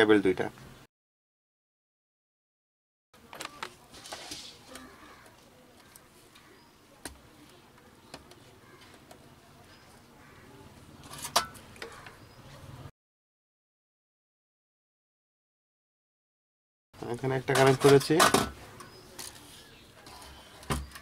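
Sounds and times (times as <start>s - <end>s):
wires rustling and clicking: 3.3s - 9.2s.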